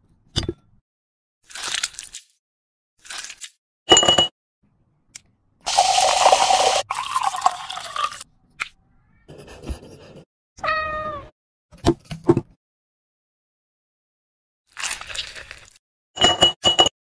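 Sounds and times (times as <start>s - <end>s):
champagne pouring into glass: 5.7s - 8.2s.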